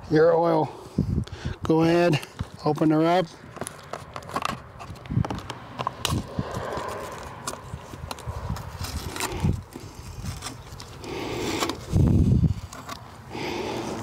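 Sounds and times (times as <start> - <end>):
plastic bottle cap clicks and crinkles: 3.5 - 11.9.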